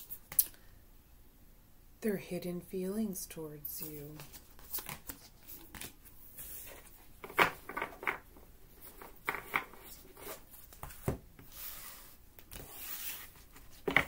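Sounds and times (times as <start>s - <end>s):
cards being shuffled: 3.9s - 8.2s.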